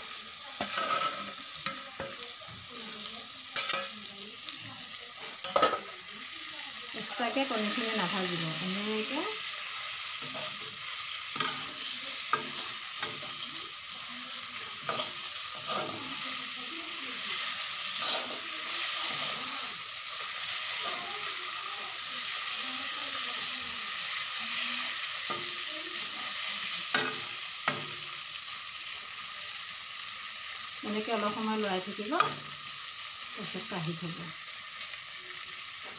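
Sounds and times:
food sizzling in oil: 0.0s - 35.9s
metal spatula scraping pan: 0.6s - 2.2s, 3.6s - 4.0s, 5.2s - 5.9s, 7.0s - 14.0s, 14.7s - 21.1s.

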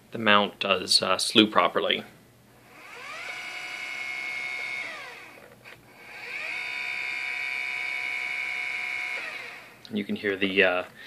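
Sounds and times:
motors whining: 2.6s - 9.8s.

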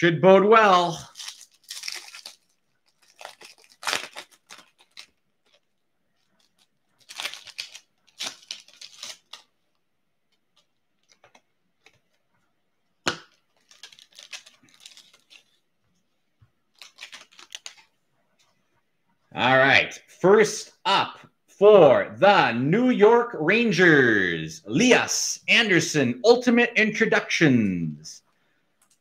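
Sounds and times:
foil wrapper tearing and crinkling: 1.0s - 9.8s, 13.1s - 15.7s, 16.7s - 17.9s.

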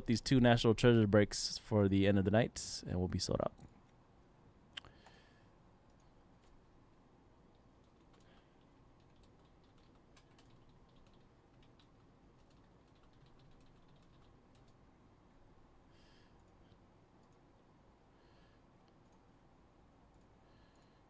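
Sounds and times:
typing on a keyboard: 7.5s - 14.8s.

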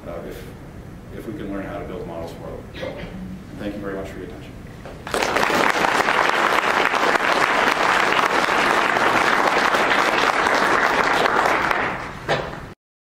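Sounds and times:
audience applauding: 5.0s - 12.2s.

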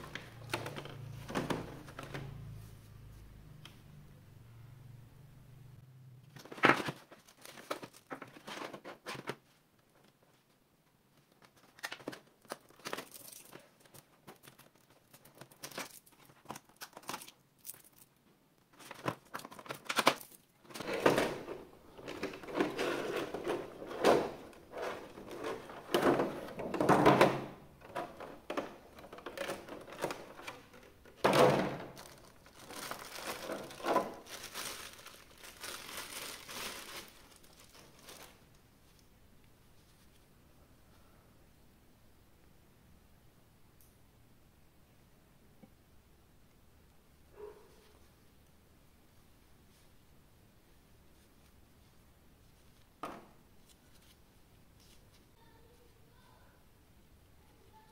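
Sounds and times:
packaging crinkling and tearing: 6.4s - 9.4s, 11.4s - 18.1s, 18.8s - 21.1s, 31.8s - 38.6s.

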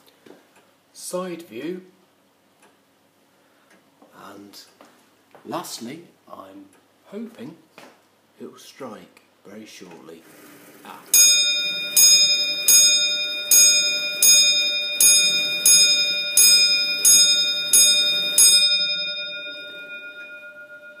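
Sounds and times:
clock striking on bell: 11.1s - 21.0s.

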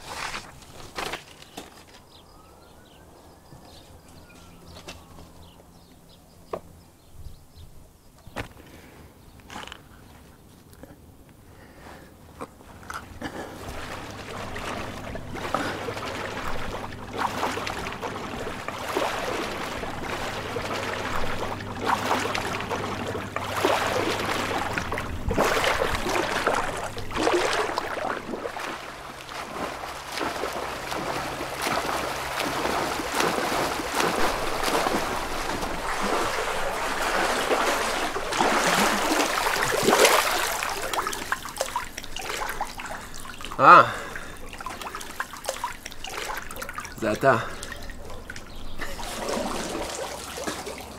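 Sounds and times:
pool water splashing: 0.0s - 6.8s, 12.0s - 50.9s.

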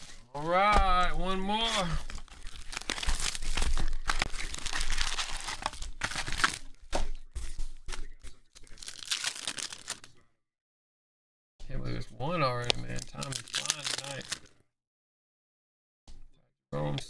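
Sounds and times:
foil packs crinkling: 0.0s - 6.9s, 7.7s - 10.1s, 12.7s - 14.5s
cardboard box tearing: 1.8s - 6.6s.

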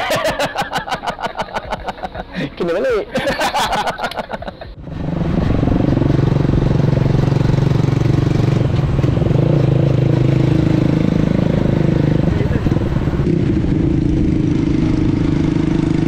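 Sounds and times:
motorcycle engine running: 4.8s - 16.0s.

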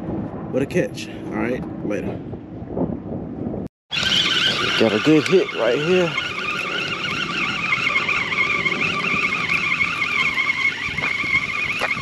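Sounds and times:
spinning reel gears whining: 3.9s - 12.0s.

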